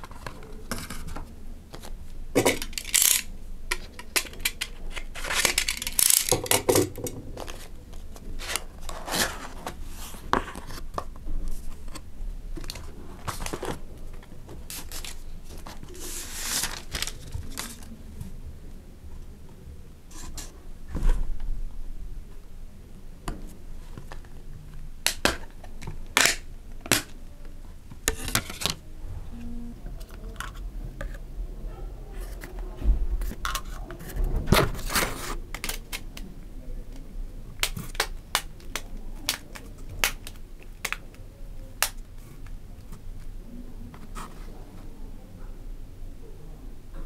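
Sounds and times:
cardboard rustling scrapes: 14.7s - 17.8s.

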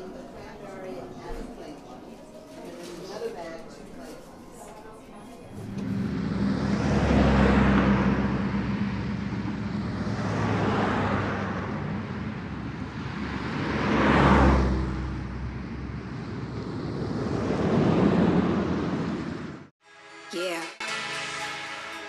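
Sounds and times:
car engine and tyre drone: 5.5s - 19.7s
road rushing noise: 5.5s - 19.7s.

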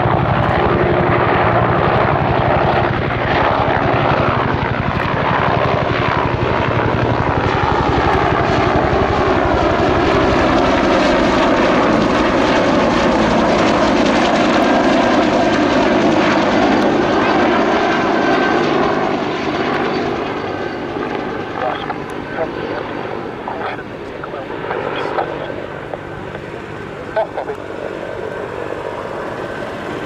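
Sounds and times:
helicopter rotor beating: 0.0s - 30.0s.

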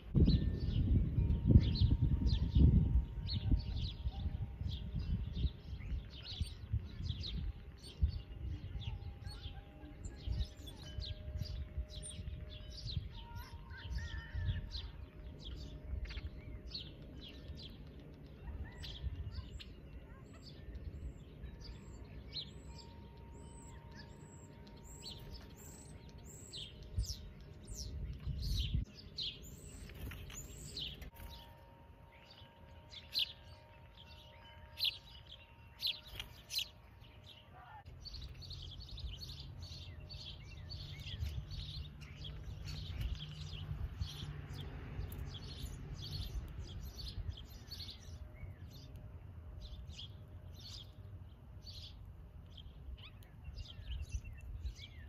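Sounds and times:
songbirds chirping: 0.0s - 55.0s.

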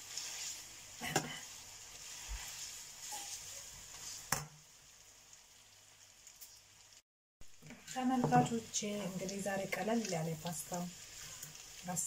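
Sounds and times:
metal spatula stirring: 0.0s - 4.4s
food sizzling in a frying pan: 0.0s - 12.0s.

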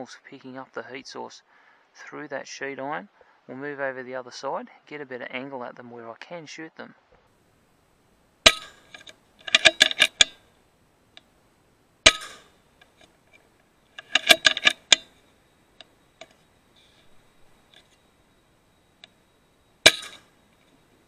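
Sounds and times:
sharp clattering knocks: 8.4s - 10.4s, 12.0s - 13.1s, 14.0s - 15.2s, 19.8s - 20.4s.

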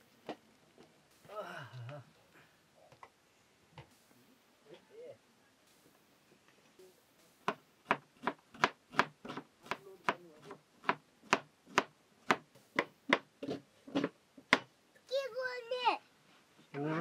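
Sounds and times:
knife chopping on plastic board: 7.5s - 10.2s, 10.8s - 14.7s.

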